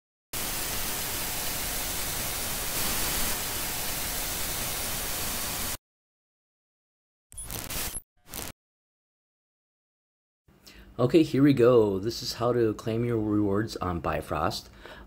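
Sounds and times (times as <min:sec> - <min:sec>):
television static hiss: 0:02.0 - 0:03.5.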